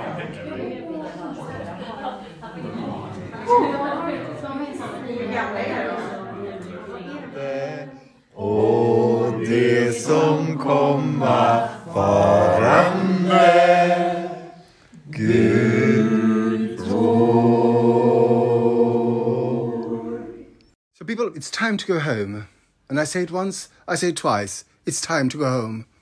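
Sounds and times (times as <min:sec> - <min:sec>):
group singing unaccompanied: 0:00.0 - 0:20.8.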